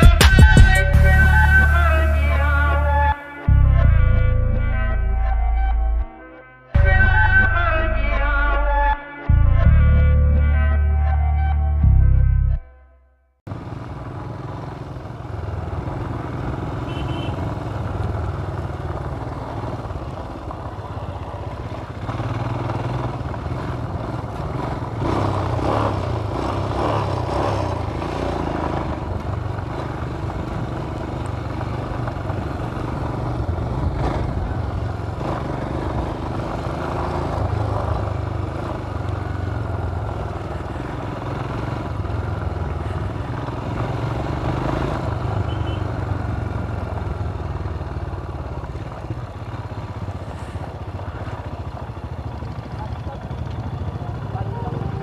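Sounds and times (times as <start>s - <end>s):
road noise and clatter: 13.4s - 55.0s
motorcycle engine running: 13.5s - 55.0s.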